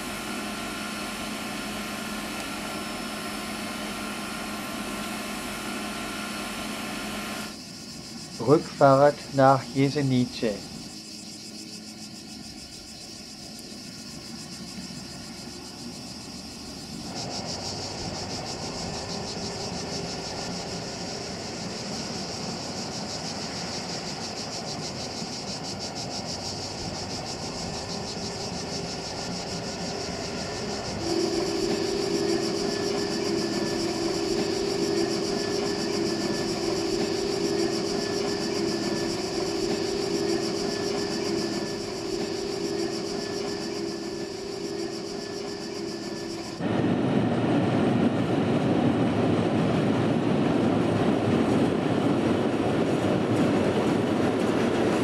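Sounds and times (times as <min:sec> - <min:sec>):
high-pitched insect buzz: 0:00.0 - 0:46.6
distant steam train running: 0:00.0 - 0:55.0
steady low drone: 0:26.2 - 0:55.0.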